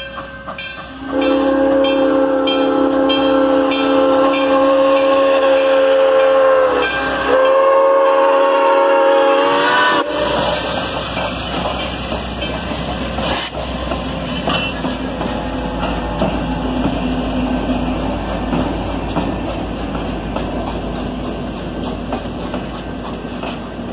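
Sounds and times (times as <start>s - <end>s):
train rumble and wheel clatter: 0.0s - 23.9s
steam whistle: 1.0s - 10.7s.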